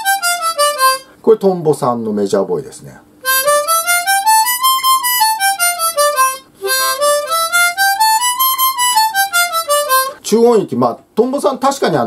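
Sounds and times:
harmonica playing a scale: 0.0s - 1.1s, 3.2s - 10.2s.

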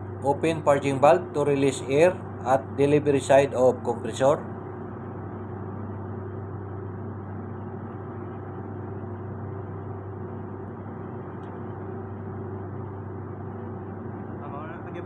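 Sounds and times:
low machinery hum: 0.0s - 15.0s.

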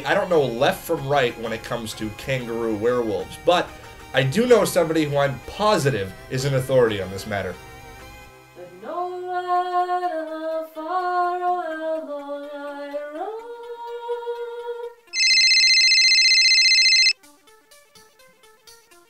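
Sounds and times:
woman singing: 8.7s - 14.8s
mobile phone ringing: 15.2s - 17.2s.

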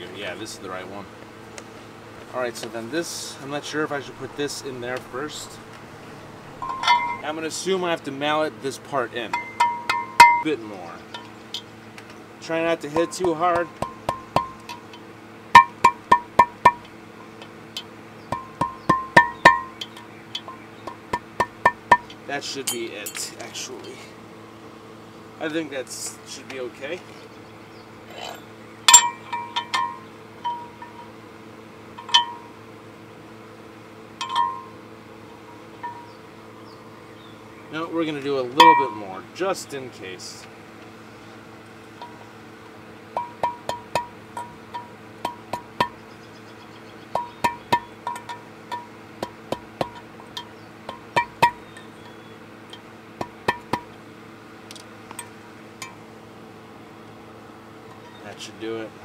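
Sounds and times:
steady low hum: 0.0s - 59.0s
hammer tapping metal: 6.6s - 7.2s, 9.3s - 10.5s, 13.0s - 14.8s, 15.6s - 16.9s, 18.3s - 23.2s, 28.9s - 31.1s, 32.0s - 32.5s, 34.2s - 34.7s, 38.6s - 39.0s, 43.2s - 46.0s, 47.1s - 51.6s, 52.7s - 53.9s
propeller clinking on metal shaft: 6.6s - 7.4s, 9.2s - 11.7s, 12.8s - 17.0s, 17.7s - 24.0s, 28.1s - 31.2s, 31.9s - 32.6s, 34.1s - 34.8s, 35.4s - 36.2s, 38.5s - 39.1s, 43.1s - 46.1s, 47.1s - 54.0s.

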